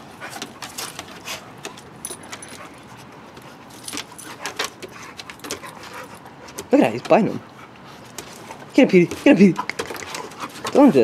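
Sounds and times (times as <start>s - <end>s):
dogs scuffling clicks: 0.2s - 7.2s, 8.0s - 11.0s
dog collar tags jingling: 1.7s - 3.0s, 3.7s - 6.2s.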